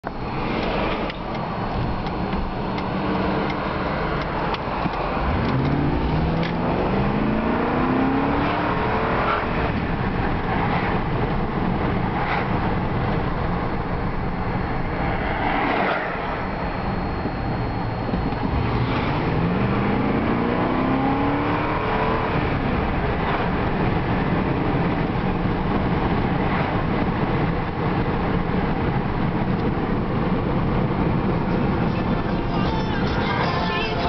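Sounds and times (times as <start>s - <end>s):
car engine accelerating: 0.0s - 34.0s
road noise: 0.0s - 34.0s.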